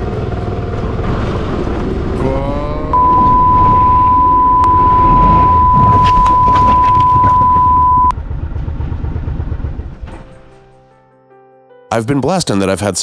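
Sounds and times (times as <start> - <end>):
censor bleep: 3.0 - 8.1.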